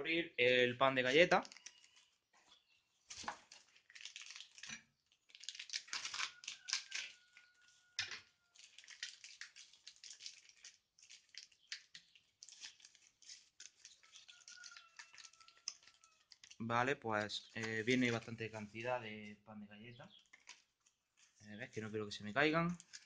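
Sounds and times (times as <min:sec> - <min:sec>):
packaging crinkling and tearing: 0:01.3 - 0:02.2, 0:03.0 - 0:16.6, 0:17.2 - 0:18.7, 0:20.2 - 0:21.8, 0:22.7 - 0:23.0.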